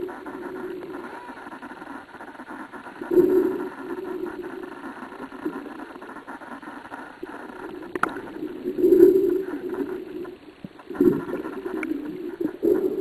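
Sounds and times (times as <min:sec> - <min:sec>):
low underwater rushing: 0:07.2 - 0:13.0.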